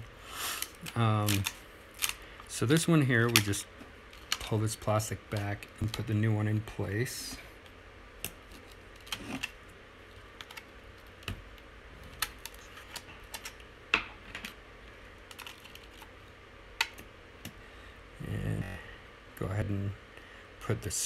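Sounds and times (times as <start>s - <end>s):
small clicks of plastic parts: 0.6s - 3.5s.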